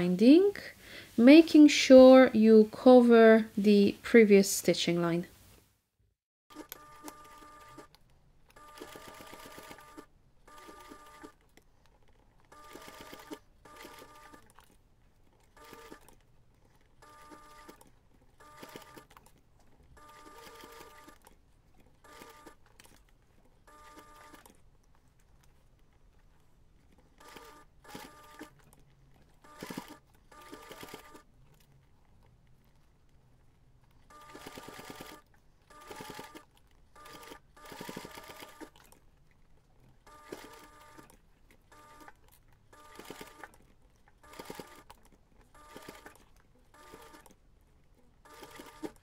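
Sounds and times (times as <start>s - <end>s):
electric sewing machine stitching: 6.5s - 7.9s, 8.5s - 11.4s, 12.5s - 14.6s, 15.6s - 16.1s, 17.0s - 17.8s, 18.4s - 19.2s, 20.0s - 21.3s, 22.1s - 22.6s, 23.7s - 24.5s, 27.2s - 28.6s, 29.4s - 31.2s, 34.1s - 38.8s, 40.1s - 41.1s, 42.8s - 43.6s, 44.2s - 45.0s, 45.6s - 46.2s, 46.8s - 47.3s, 48.3s - 49.0s.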